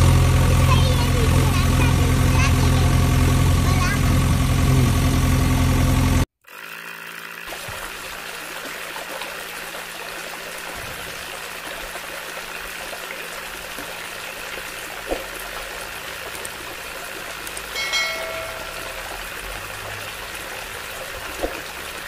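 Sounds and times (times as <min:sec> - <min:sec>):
water trickling into puddle: 0:06.4 - 0:22.0
short chime: 0:17.8 - 0:19.2.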